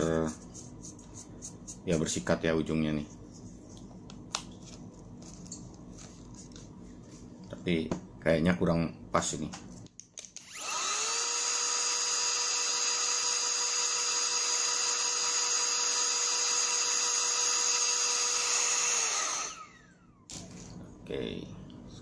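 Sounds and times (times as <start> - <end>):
air duster motor whining: 10.4 - 20.7.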